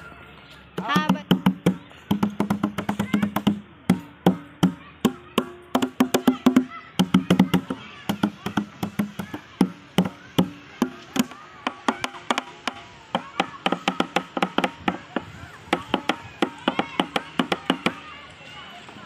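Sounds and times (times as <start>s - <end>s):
plastic drums beaten by hand: 0.8s - 18.1s.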